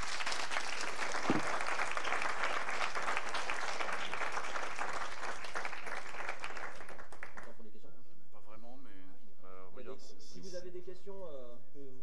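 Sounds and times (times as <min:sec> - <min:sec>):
audience applauding: 0:00.0 - 0:07.6.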